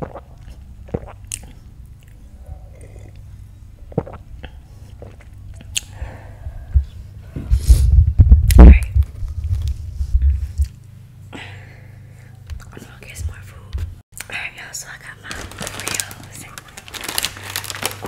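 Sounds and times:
person sipping and gulping: 0.0 - 3.3, 3.9 - 6.0
low rumbling breathy noise: 1.5 - 13.8.

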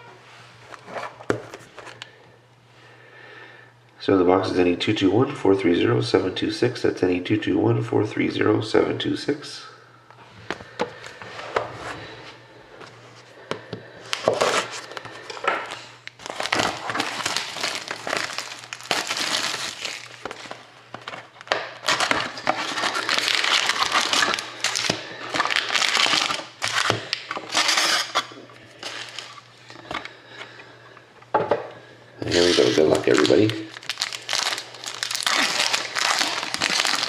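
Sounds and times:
plastic shrink wrap crinkling: 14.1 - 29.8, 32.2 - 37.0
cardboard tear strip ripping: 32.2 - 37.0.

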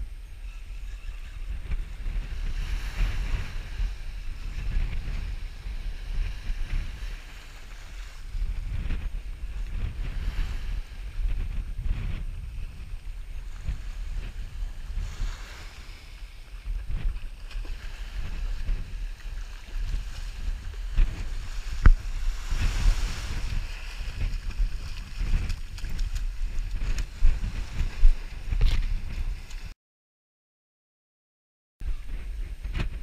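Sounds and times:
wind buffeting microphone: 0.0 - 29.7, 31.8 - 33.0
ocean surf washing: 0.9 - 29.7.

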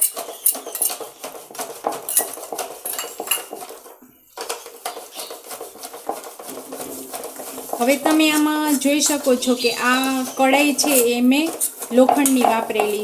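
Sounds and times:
steel utensils clinking on bowl: 0.0 - 1.0, 2.0 - 3.6, 7.7 - 13.0.

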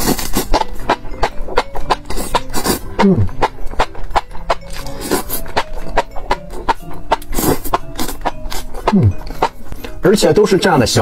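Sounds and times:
wet chewing and slurping: 0.0 - 10.0.

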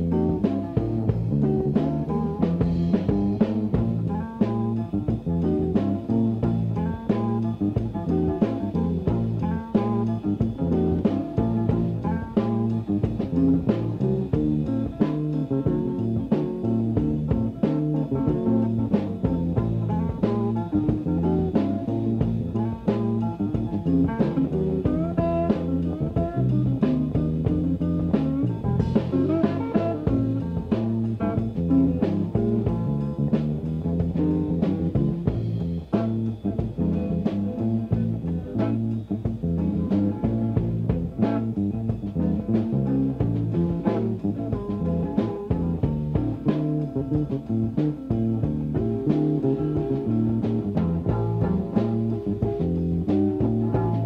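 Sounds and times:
bass guitar: 0.0 - 54.0
blues guitar lead: 0.0 - 54.0
drum kit: 0.0 - 54.0.

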